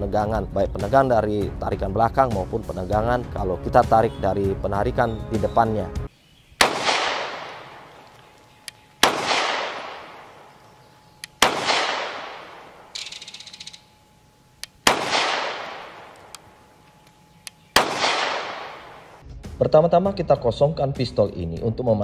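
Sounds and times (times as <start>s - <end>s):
pistol shots with echo: 6.6s - 8.2s, 9.0s - 13.4s, 14.7s - 16.7s, 17.6s - 19.2s.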